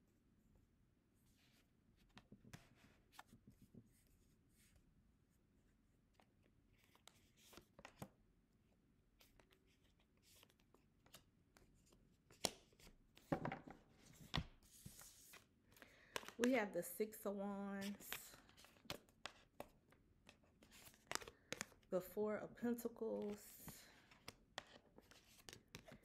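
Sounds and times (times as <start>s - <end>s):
cards tapping on a table: 13.3s - 14.5s
cards rustling: 14.0s - 16.7s, 17.8s - 26.0s.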